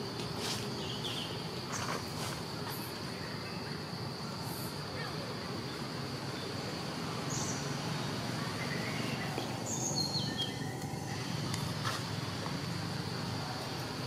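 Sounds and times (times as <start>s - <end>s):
high insect drone: 0.0s - 14.0s
bird chirps: 8.4s - 11.5s.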